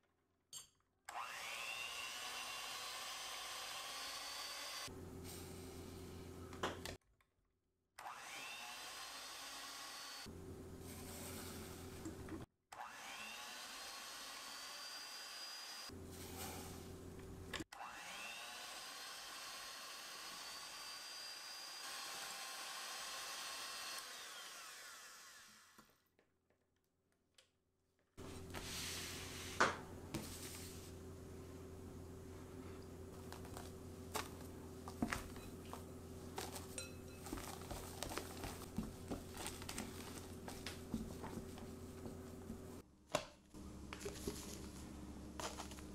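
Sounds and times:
electric hand mixer whining: 1.1 - 4.9, 8.0 - 10.3, 17.7 - 25.9.

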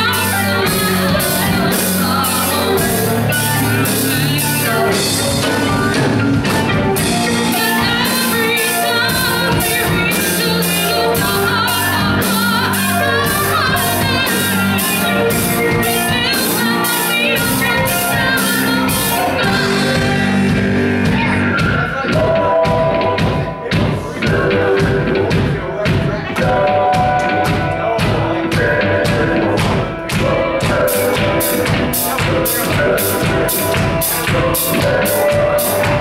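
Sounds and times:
woman singing: 0.0 - 23.3
drum cymbal beat: 0.0 - 36.0
rock band playing: 0.0 - 36.0.

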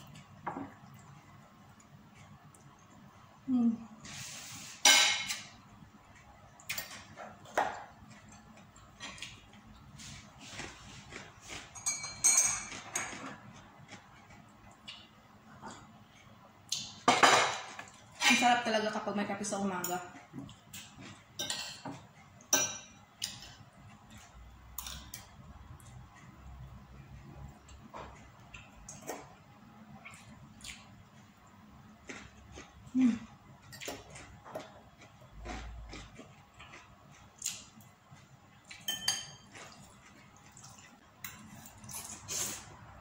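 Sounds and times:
cutlery clinking on a plate: 11.7 - 13.3, 38.7 - 39.8.

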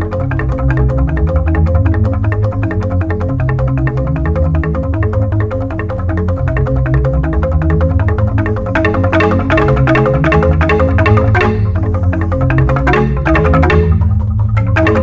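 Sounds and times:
bamboo xylophones struck with mallets: 0.0 - 15.0
deep sustained bass tones: 0.0 - 15.0.

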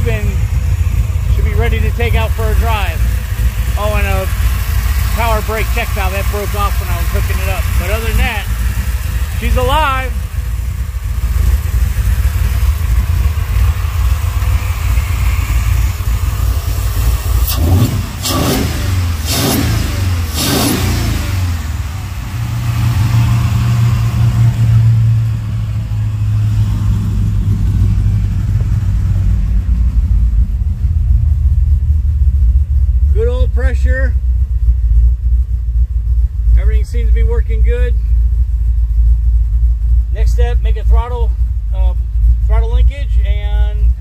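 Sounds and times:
truck engine running: 0.0 - 44.0.

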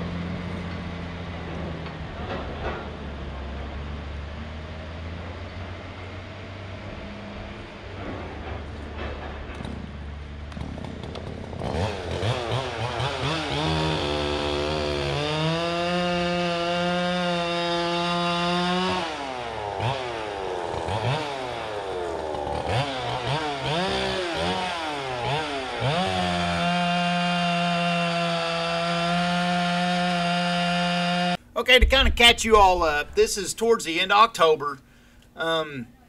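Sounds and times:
chainsaw cutting log: 10.5 - 31.4
chainsaw revving: 11.2 - 31.4.

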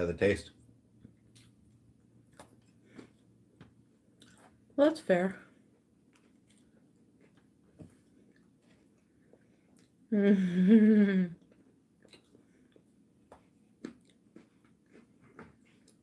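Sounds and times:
person humming: 10.1 - 11.4.

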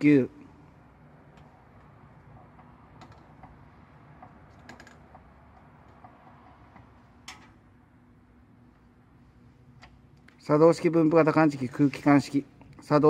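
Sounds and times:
light clicks and taps: 1.3 - 7.5.

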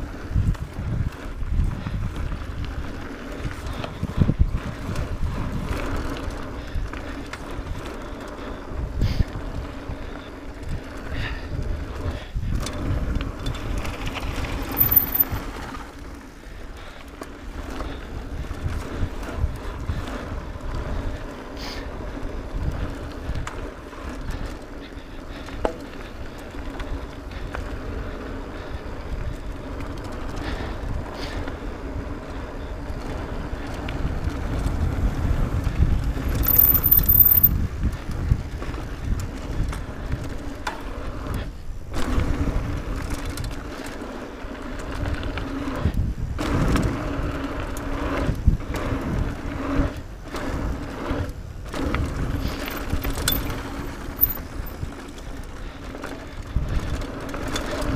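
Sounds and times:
bike clicks and rattles: 0.0 - 57.9
bike tyres rolling over dirt: 0.0 - 57.9
wind rumble on microphone: 0.0 - 57.9.

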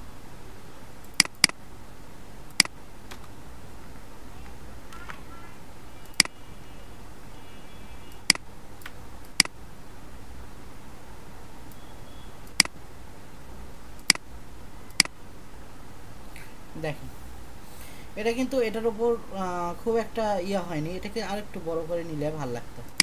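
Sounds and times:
low background hum: 0.0 - 23.0
computer mouse clicking: 1.0 - 1.6, 6.0 - 6.4, 8.1 - 9.6, 12.4 - 12.8, 14.9 - 15.2.

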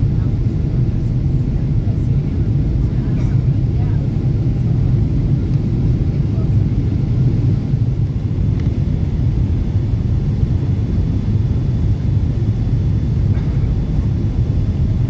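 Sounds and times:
jet airliner cabin rumble: 0.0 - 15.0.

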